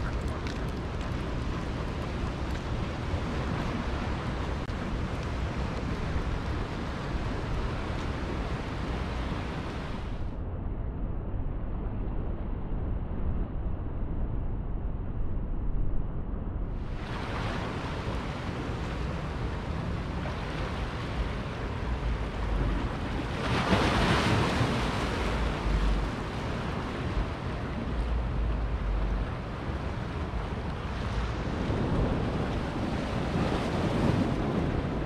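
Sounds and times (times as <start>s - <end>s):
ocean surf washing ashore: 0.0s - 10.3s, 16.8s - 35.0s
wind buffeting microphone: 0.0s - 10.8s, 11.6s - 35.0s.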